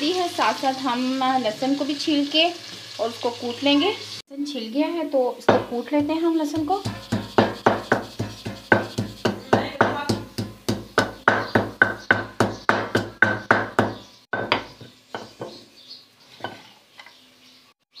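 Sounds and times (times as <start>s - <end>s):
pestle pounding in mortar: 5.5s - 15.6s.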